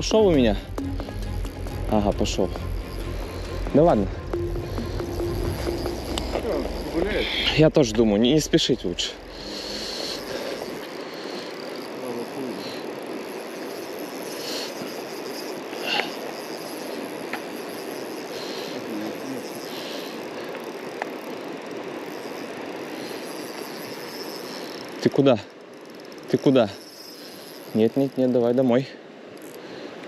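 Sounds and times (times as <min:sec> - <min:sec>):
river current rushing: 0:00.0 - 0:30.0
faint clicks: 0:15.7 - 0:17.9.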